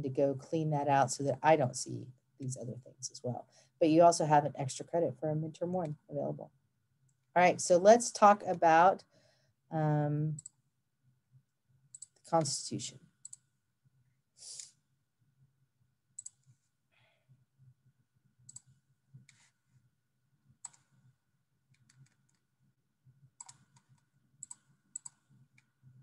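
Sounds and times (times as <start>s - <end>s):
mouse and keyboard clicks: 20.6s - 21.0s, 23.4s - 25.7s.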